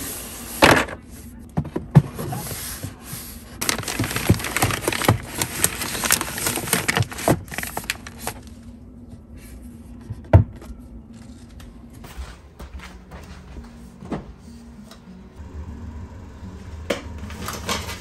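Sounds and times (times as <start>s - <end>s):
papers rustling: 3.6s - 8.6s.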